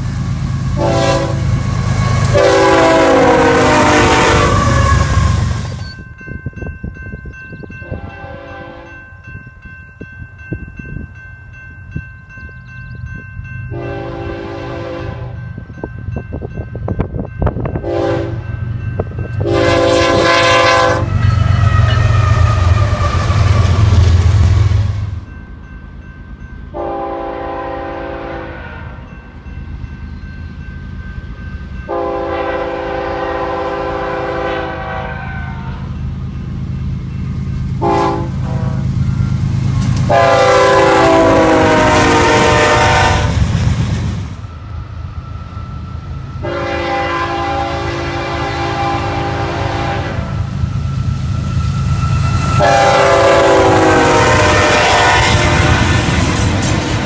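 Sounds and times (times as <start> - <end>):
freight train rumbling: 0.0 - 57.0
locomotive horn blasts: 0.7 - 5.5, 7.8 - 9.0, 13.7 - 15.4, 17.8 - 18.5, 19.4 - 24.1, 26.7 - 29.1, 31.9 - 35.9, 37.8 - 39.0, 40.1 - 43.4, 46.4 - 50.5, 51.1 - 56.4.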